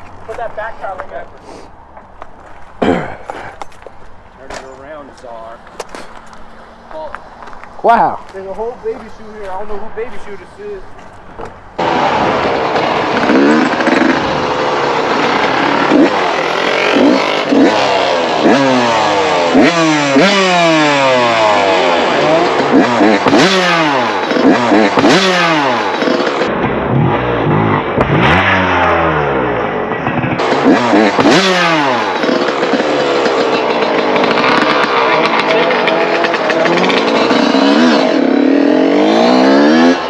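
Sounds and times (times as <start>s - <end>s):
dirt bike engine revving: 11.8s - 40.0s.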